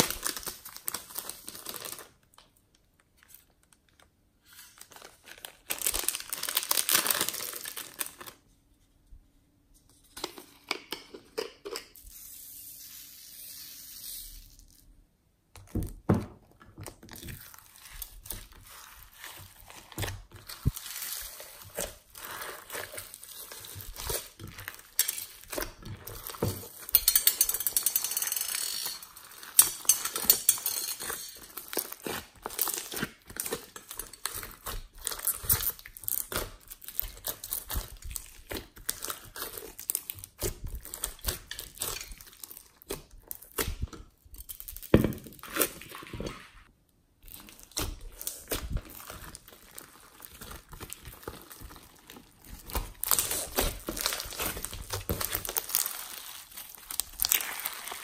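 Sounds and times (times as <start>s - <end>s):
hands squishing sticky slime: 17.0s - 26.9s, 31.0s - 43.9s, 47.2s - 58.0s.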